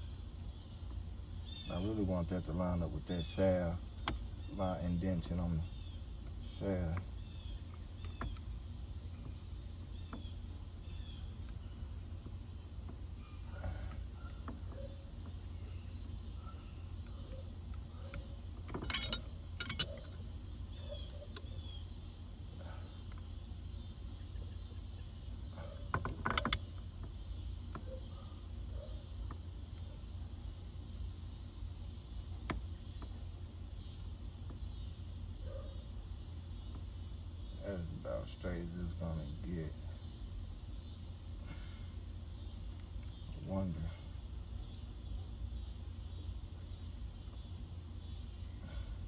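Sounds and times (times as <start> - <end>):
high insect trill: 0.0 - 49.0
metal tools clinking: 18.7 - 20.1.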